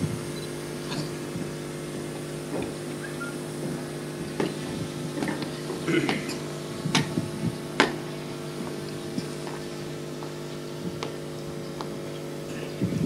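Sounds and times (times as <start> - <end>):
steady hum: 0.0 - 13.0
sharp knocks: 3.7 - 9.6.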